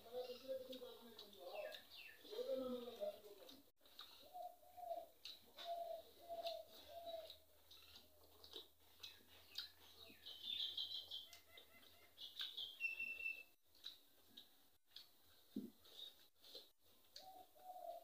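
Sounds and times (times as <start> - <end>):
man chewing with mouth clicks: 0.2 - 18.0
dove cooing: 4.2 - 7.4, 17.2 - 18.0.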